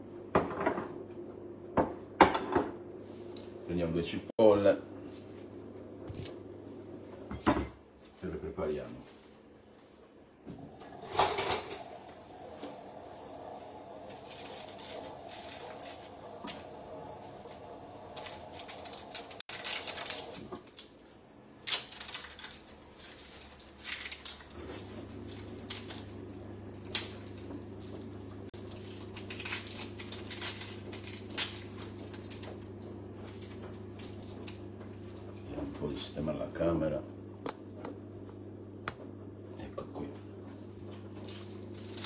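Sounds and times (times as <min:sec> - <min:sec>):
steady low hum: 0:00.0 - 0:42.0
onion skins crackling: 0:13.9 - 0:35.1, 0:41.0 - 0:42.0.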